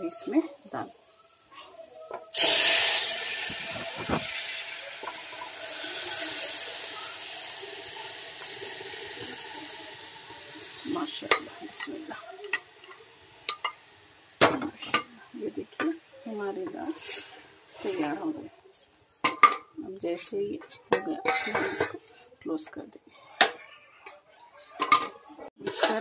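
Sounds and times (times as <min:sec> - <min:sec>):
hot oil sizzling: 0:00.0 - 0:22.7
pots clinking: 0:02.1 - 0:16.0, 0:19.2 - 0:19.7, 0:20.6 - 0:22.8, 0:23.4 - 0:26.0.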